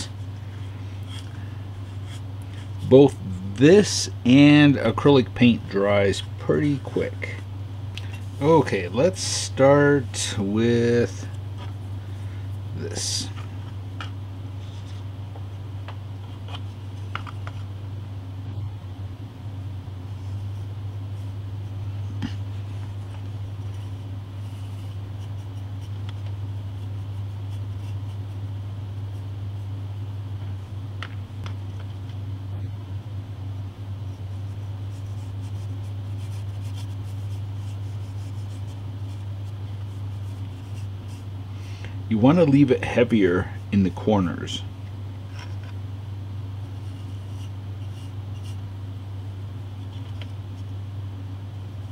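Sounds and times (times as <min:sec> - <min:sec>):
low room hum: 0:00.0 - 0:51.9
paintbrush scratchy strokes: 0:23.6 - 0:26.0, 0:26.8 - 0:28.4, 0:34.1 - 0:41.3, 0:46.7 - 0:48.6.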